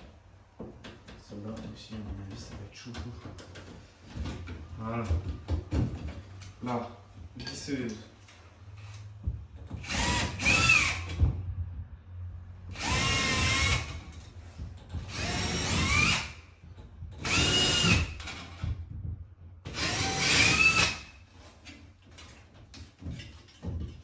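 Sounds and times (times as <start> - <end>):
cordless drill whining: 9.8 - 11.1, 12.7 - 14.0, 15.1 - 16.4, 17.2 - 18.6, 19.7 - 21.1.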